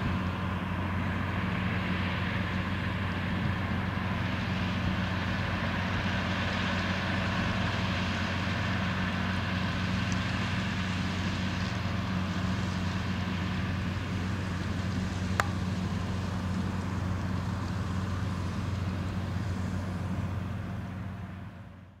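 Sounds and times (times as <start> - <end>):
diesel tractor engine droning: 0.0 - 22.0.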